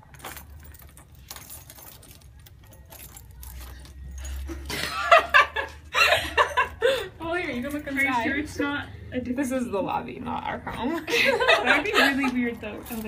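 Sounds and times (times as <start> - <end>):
keys jangling: 0.0 - 5.2, 11.4 - 13.0.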